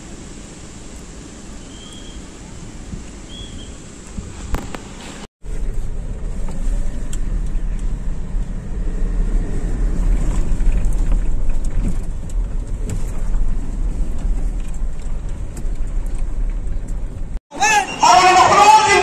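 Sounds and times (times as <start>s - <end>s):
road noise: 0.0s - 19.0s
car engine: 2.2s - 17.4s.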